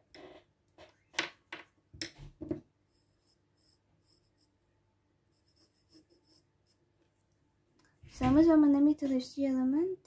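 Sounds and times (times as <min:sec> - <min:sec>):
pencil scratching on paper: 0:02.9 - 0:04.6, 0:05.3 - 0:06.8.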